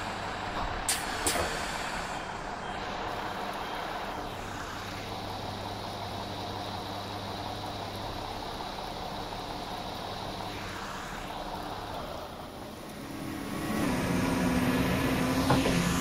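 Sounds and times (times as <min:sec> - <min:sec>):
train diesel engine humming: 0:00.0 - 0:16.0.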